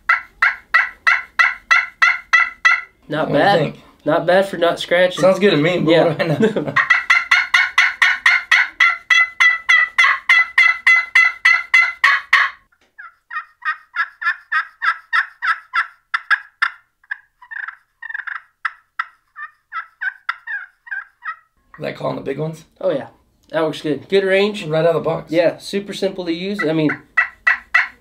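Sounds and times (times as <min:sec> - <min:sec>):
turkey call notes: 0:00.0 - 0:03.0, 0:06.8 - 0:21.8, 0:26.4 - 0:28.0.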